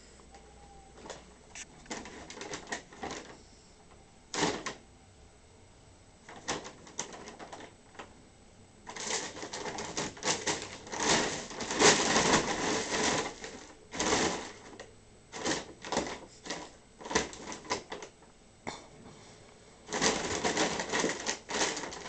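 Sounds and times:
bag rustling and crinkling: 0:01.8 - 0:03.4, 0:08.9 - 0:18.1, 0:19.8 - 0:22.0.

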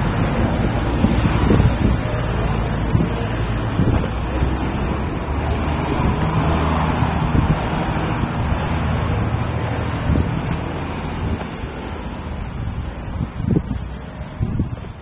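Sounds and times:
low engine hum: 0:00.0 - 0:15.0
road traffic rumble: 0:00.0 - 0:15.0.

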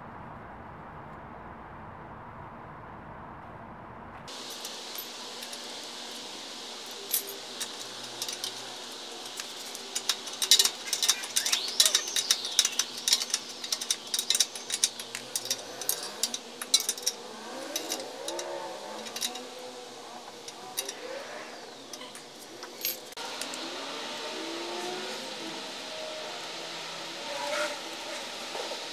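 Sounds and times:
wrench clicking on metal nut: 0:09.2 - 0:19.4.

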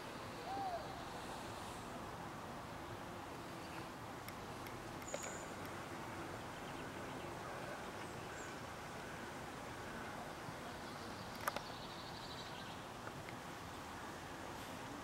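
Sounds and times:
outdoor background noise: 0:00.0 - 0:15.0
faint clicks: 0:03.7 - 0:05.8, 0:11.2 - 0:11.7.

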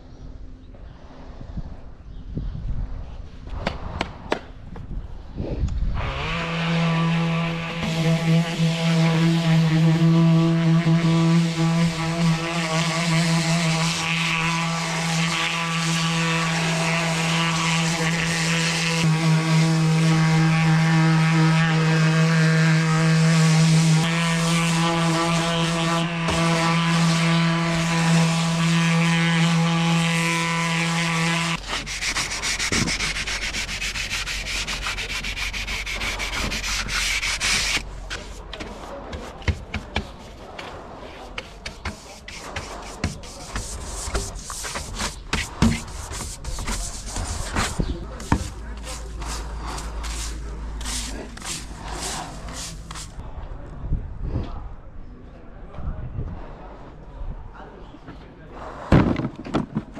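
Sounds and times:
orbital sander running: 0:06.0 - 0:38.4, 0:41.6 - 0:53.2
hand brush sweeping: 0:30.5 - 0:53.2.

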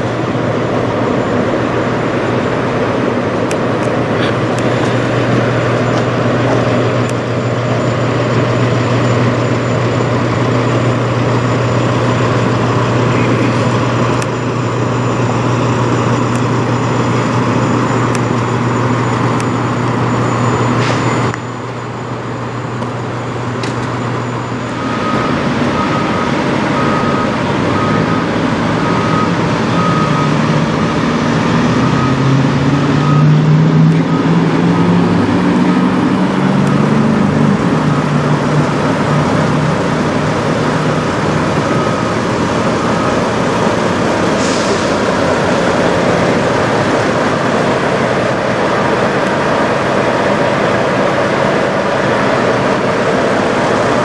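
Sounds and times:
backup alarm beeping: 0:00.0 - 0:54.0
truck diesel engines idling: 0:00.0 - 0:54.0.

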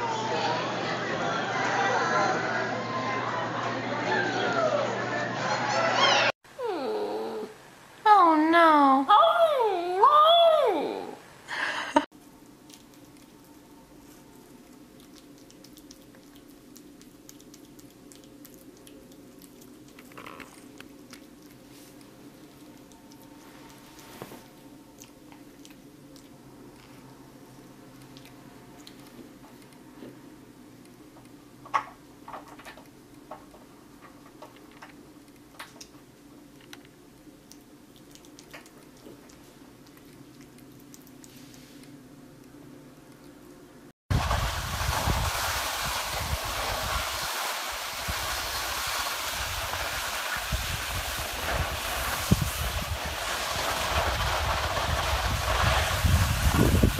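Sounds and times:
faint steady hum: 0:06.5 - 0:56.9
kitten chewing watermelon: 0:12.1 - 0:43.9.

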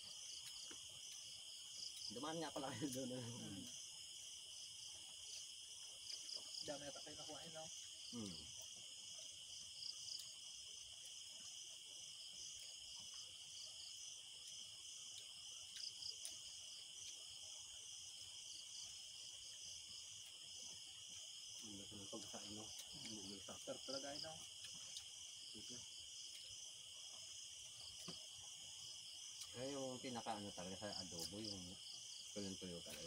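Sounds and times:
crickets trilling: 0:00.0 - 0:33.0
man muttering: 0:08.1 - 0:08.5.

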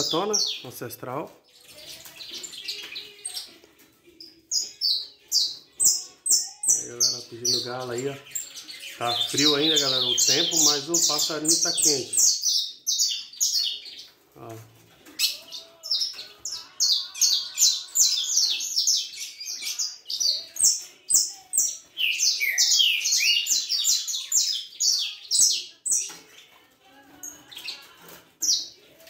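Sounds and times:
finches chirping rapidly: 0:00.0 - 0:00.8, 0:04.2 - 0:14.2, 0:15.2 - 0:26.2.

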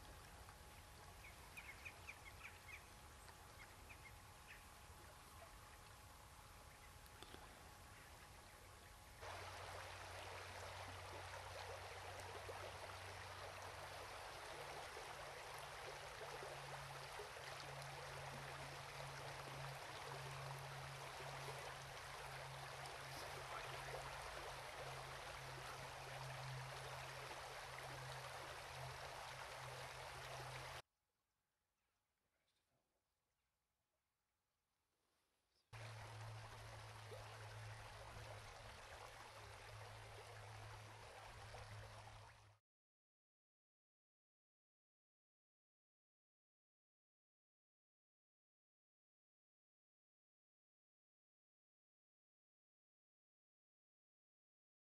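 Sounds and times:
flowing river water: 0:00.0 - 0:30.8, 0:35.8 - 0:42.6.

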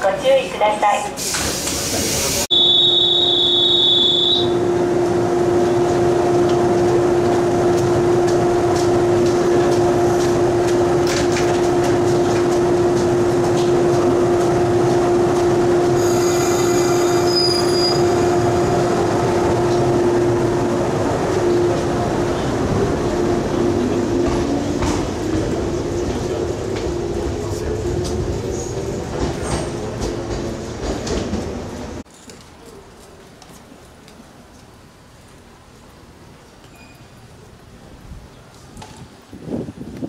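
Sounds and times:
electric train hum: 0:01.7 - 0:32.1.

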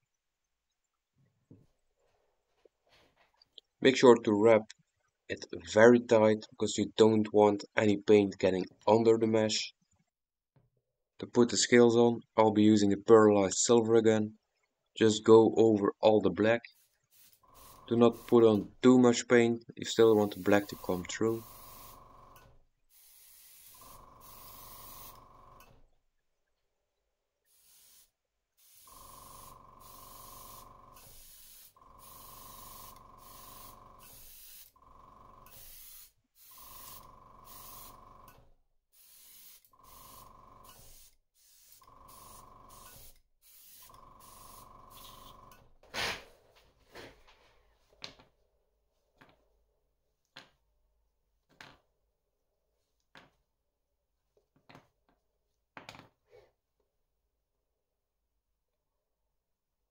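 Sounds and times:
airbrush spraying: 0:16.7 - 0:18.7, 0:20.0 - 0:22.2, 0:22.9 - 0:25.4, 0:27.5 - 0:34.8, 0:35.4 - 0:38.3, 0:39.0 - 0:45.6.

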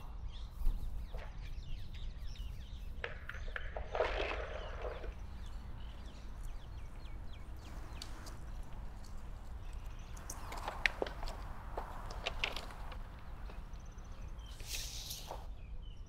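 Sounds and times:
birds chirping: 0:00.0 - 0:16.0
brief rustle: 0:03.9 - 0:15.5.

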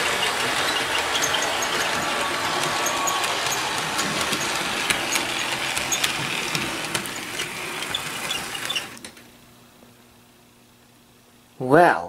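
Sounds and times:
model train motor whirring: 0:00.0 - 0:09.0
wheels clicking over rail joints: 0:00.0 - 0:09.0.

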